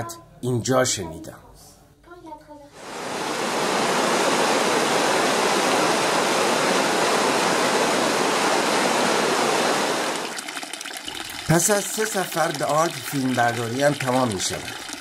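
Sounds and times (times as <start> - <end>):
river rushing over rocks: 2.8 - 10.3.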